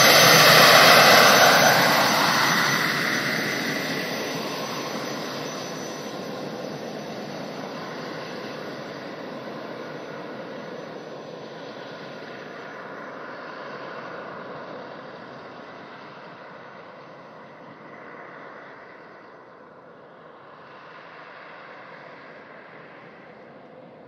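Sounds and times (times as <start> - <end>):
gas turbine engine rushing: 0.0 - 11.2.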